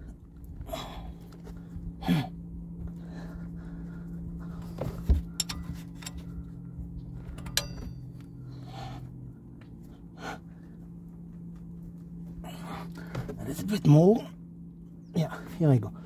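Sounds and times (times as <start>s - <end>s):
steady low hum: 0.0s - 16.0s
man grunting with effort: 2.0s - 2.4s
ringing metal clink: 5.4s - 6.3s, 7.4s - 8.2s.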